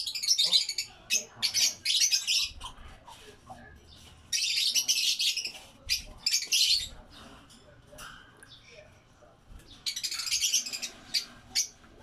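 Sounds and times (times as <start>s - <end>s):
lovebirds chirping: 0.0s - 7.6s, 9.6s - 12.0s.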